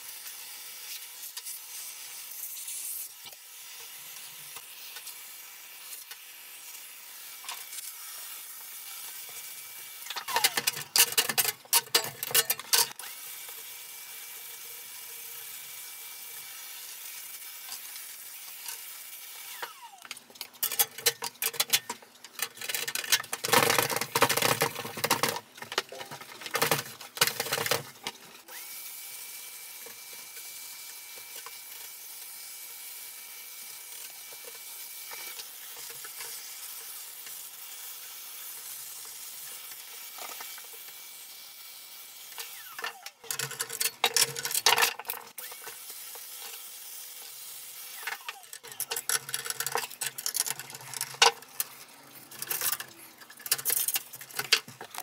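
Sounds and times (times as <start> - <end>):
clattering knocks and scraping: 20.2 - 28.2, 48.1 - 55.0.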